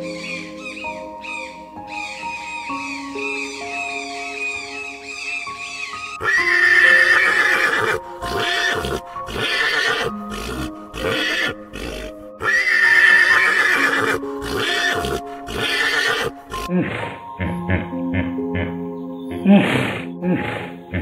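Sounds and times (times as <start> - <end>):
background music: 0.0 - 21.0
pony neighing: 4.4 - 17.8.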